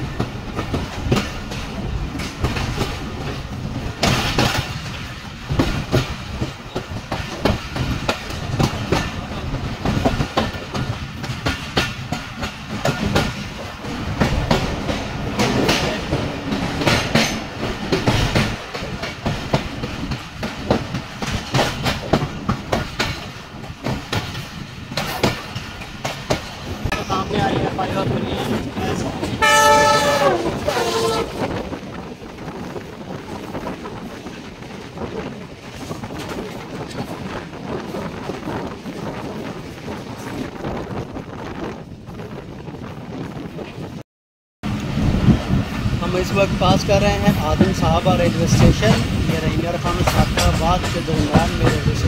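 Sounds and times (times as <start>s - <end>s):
wheels clicking over rail joints: 0.0s - 30.4s, 44.7s - 52.0s
train wheels rumbling on track: 0.0s - 44.0s, 44.6s - 52.0s.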